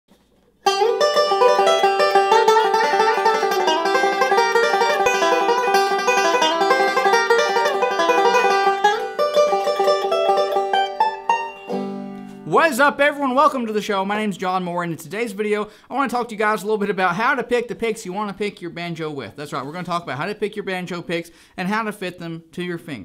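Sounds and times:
fast picked banjo: 0.6 - 14.4.

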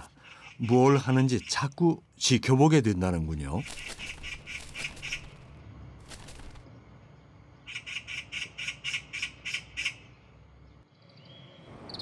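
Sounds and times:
magpie chattering: 3.6 - 5.3.

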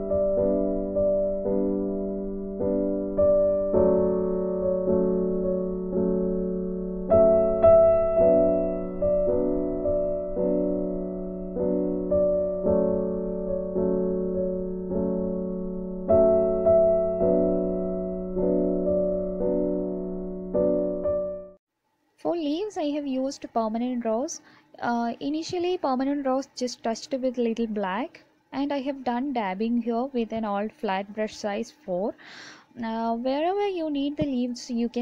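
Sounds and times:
gentle piano music: 0.0 - 21.6.

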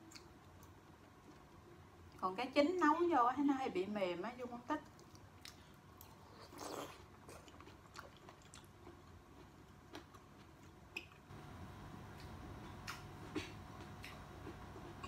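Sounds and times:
person chewing food: 4.9 - 11.3, 12.0 - 15.0.

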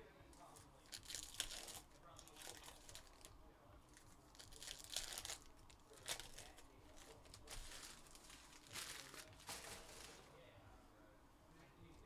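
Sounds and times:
foil wrapper crinkling and tearing: 0.9 - 10.3.

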